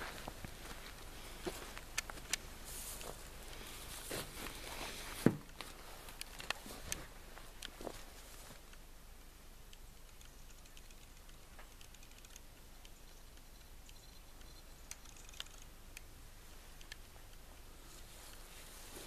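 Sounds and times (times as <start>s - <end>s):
faint clicks and ticks: 1.7s - 3.7s, 5.4s - 7.8s, 8.6s - 18.5s.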